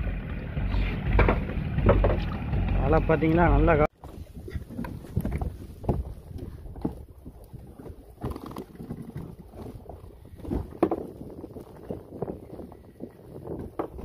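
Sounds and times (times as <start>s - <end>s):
wind rumbling on microphone: 4.0s - 14.0s.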